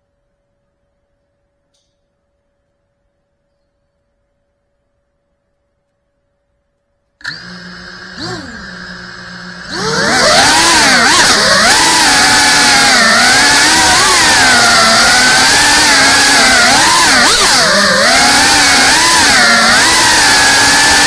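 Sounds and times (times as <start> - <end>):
drone motors whining: 7.2 - 21.0.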